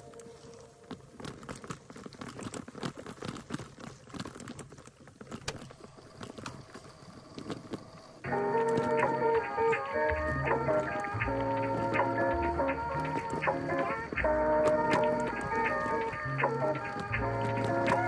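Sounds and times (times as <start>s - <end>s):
tyres crunching on dirt and leaves: 0.0s - 11.2s
bike clicks and rattles: 0.0s - 18.0s
music: 8.2s - 18.0s.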